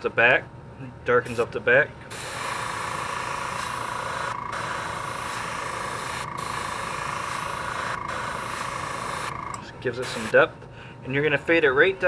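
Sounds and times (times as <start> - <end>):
airbrush spraying hiss: 2.1 - 10.3.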